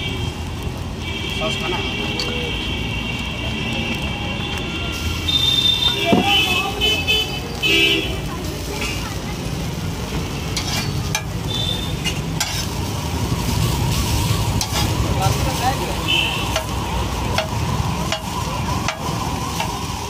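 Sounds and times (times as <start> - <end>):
omelette sizzling on griddle: 0.0 - 20.0
metal spatula scraping iron: 10.5 - 11.3, 12.0 - 12.8.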